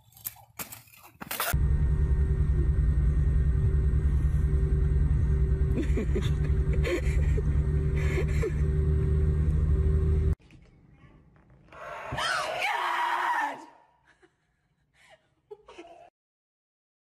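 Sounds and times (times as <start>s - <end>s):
jet engine rumble: 1.6s - 10.4s.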